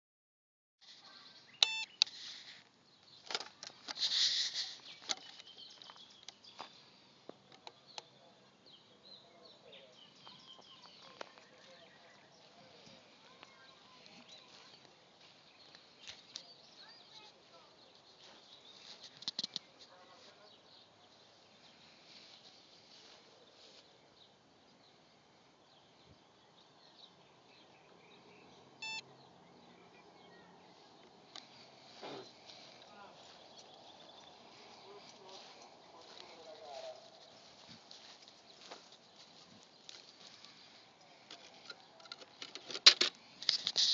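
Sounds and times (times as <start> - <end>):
faint bird and insect chirps: 0.8 - 42.6
short electronic beep: 1.6 - 2.0, 28.8 - 29.0.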